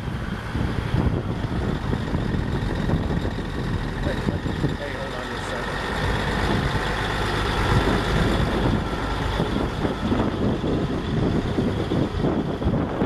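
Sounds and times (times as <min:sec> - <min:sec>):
truck diesel engine running: 0:00.0 - 0:13.0.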